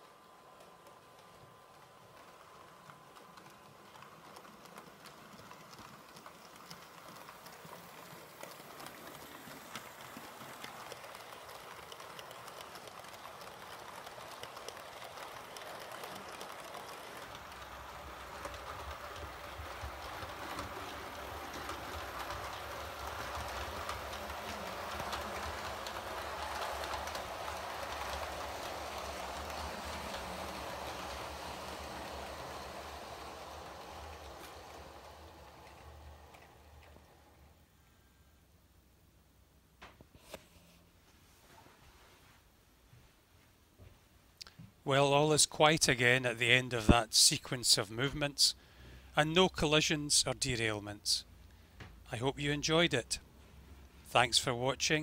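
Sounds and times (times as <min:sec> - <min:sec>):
model train wheels clicking: 0:00.0 - 0:37.6.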